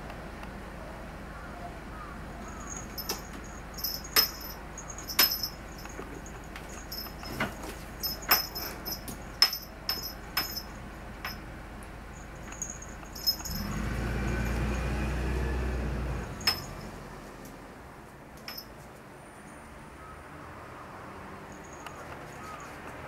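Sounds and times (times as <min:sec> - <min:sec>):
small bell jingling: 0:02.4 - 0:11.5, 0:12.1 - 0:15.0, 0:16.4 - 0:16.9, 0:21.5 - 0:22.8.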